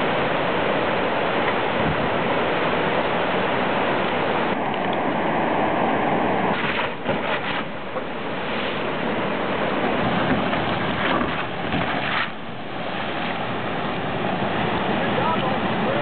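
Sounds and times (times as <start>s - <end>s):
whitewater rushing: 0.0s - 16.0s.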